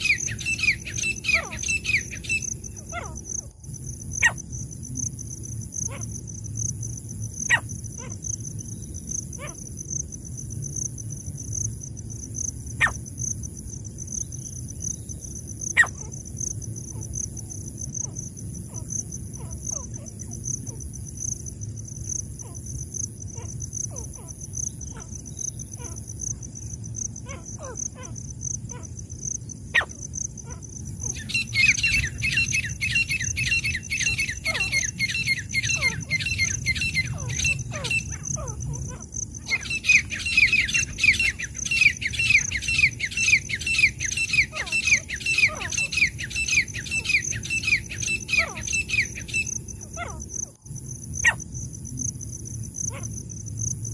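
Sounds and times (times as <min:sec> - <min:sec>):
bird calling loudly: 0:00.0 - 0:03.2, 0:29.8 - 0:50.2
insects trilling: 0:00.0 - 0:53.9
sharp insect chirps: 0:00.0 - 0:53.9.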